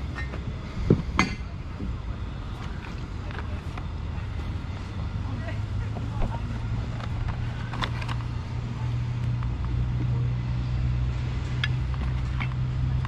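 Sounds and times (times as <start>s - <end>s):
low motor hum: 0.0s - 13.0s
boxes handled clicks and rustles: 6.9s - 8.4s.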